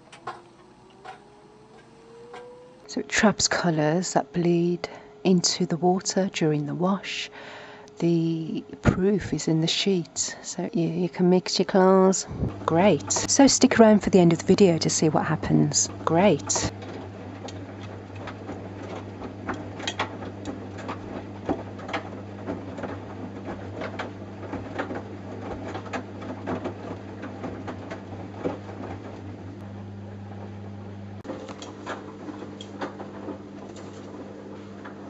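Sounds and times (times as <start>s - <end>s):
washing machine motor hum: 0.0s - 35.0s
clothes tumbling in drum: 16.0s - 30.5s.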